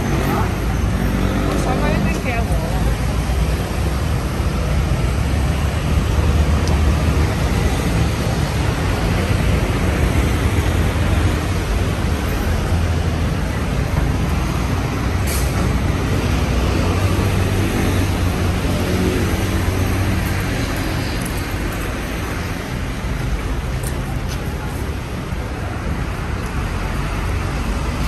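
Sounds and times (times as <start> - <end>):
traffic rumble: 0.0 - 28.0.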